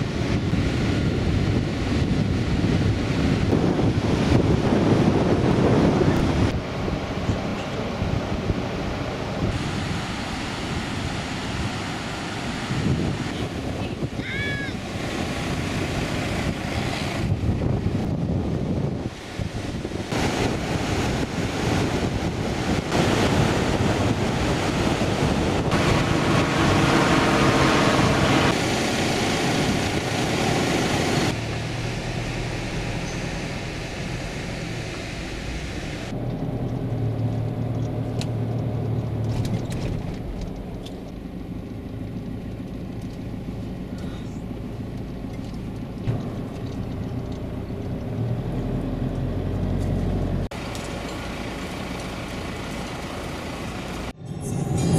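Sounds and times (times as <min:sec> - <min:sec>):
vehicle engine low drone: 0:00.0 - 0:14.1, 0:14.8 - 0:54.9
wind on the microphone: 0:00.0 - 0:31.4
surf on a beach: 0:00.0 - 0:36.2, 0:43.0 - 0:54.9
vehicles driving on sand: 0:00.0 - 0:54.9.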